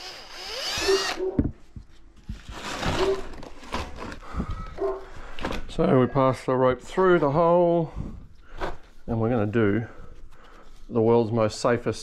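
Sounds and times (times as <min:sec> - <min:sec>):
drill boring through plastic: 0:00.0 - 0:01.2
power drill whining: 0:00.0 - 0:01.4.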